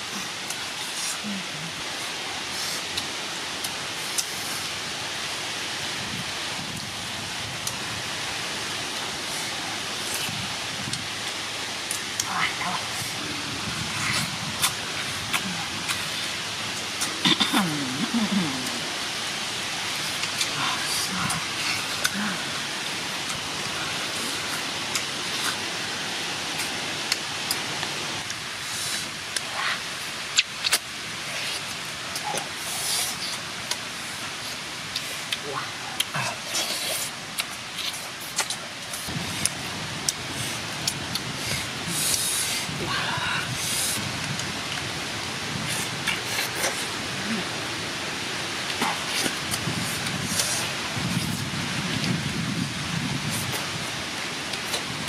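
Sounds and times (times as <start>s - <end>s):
steady hiss: 0.0s - 55.0s.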